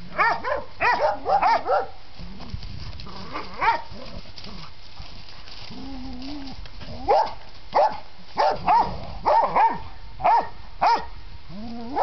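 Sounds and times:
background noise: 0.0s - 12.0s
dogs barking in high yips: 0.2s - 2.0s, 3.4s - 3.9s, 7.1s - 11.1s.

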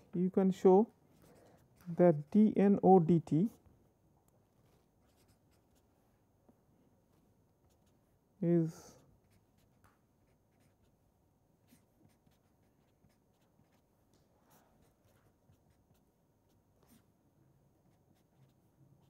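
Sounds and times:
pen scratching on paper: 5.0s - 5.9s, 7.7s - 8.0s, 9.3s - 11.0s, 11.6s - 17.1s, 17.8s - 19.0s.

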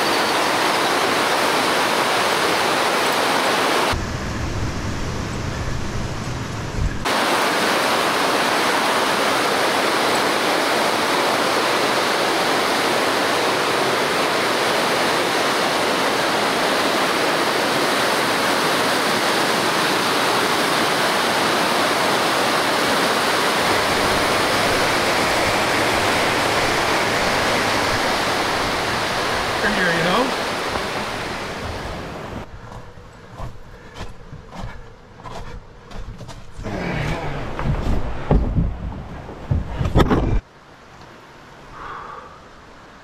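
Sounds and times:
rapids rushing over rocks: 0.0s - 4.0s, 7.0s - 32.5s.

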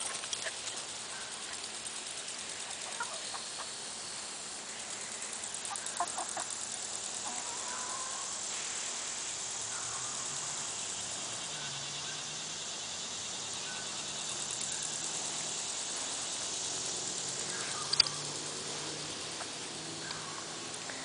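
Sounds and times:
chickens clucking: 0.0s - 3.8s, 5.5s - 8.3s
insects chirping in rapid pulses: 0.0s - 21.0s.

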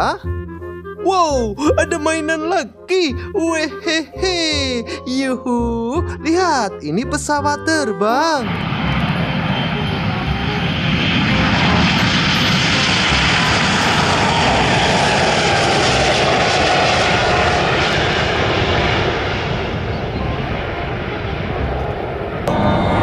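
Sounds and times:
jet engine noise: 8.2s - 23.0s.

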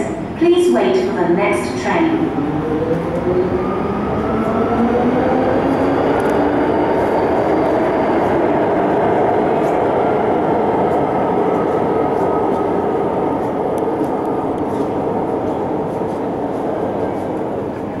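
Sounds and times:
train whine: 0.0s - 18.0s
train wheels rumbling on rail: 1.8s - 18.0s.

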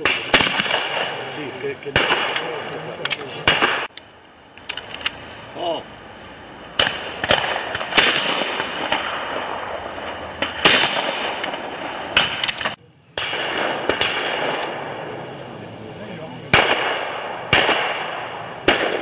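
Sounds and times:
faint gunshots: 0.0s - 3.9s, 6.8s - 15.3s, 16.5s - 19.0s
shotgun shots echoing: 0.0s - 3.9s, 6.7s - 15.2s, 16.5s - 19.0s.

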